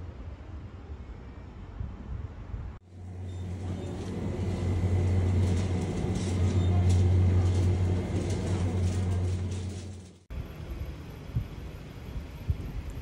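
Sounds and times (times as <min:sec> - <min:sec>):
shopping cart wheels rumbling: 0:02.9 - 0:10.3.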